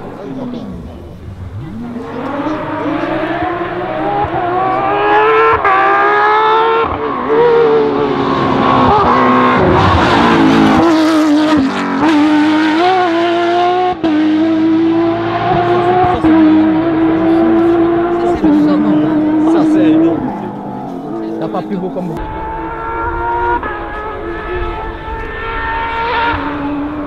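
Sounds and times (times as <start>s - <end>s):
rally car engine at full throttle: 0.0s - 27.0s.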